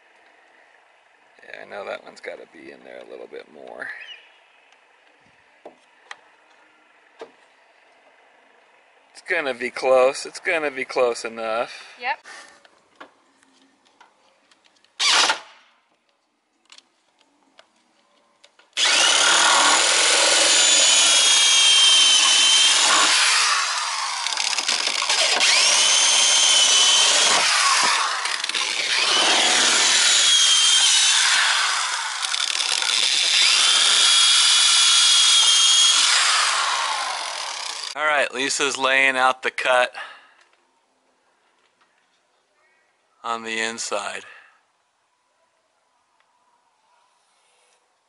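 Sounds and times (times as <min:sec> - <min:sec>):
electric drill drilling wood: 0:15.0 - 0:15.5, 0:18.8 - 0:38.0.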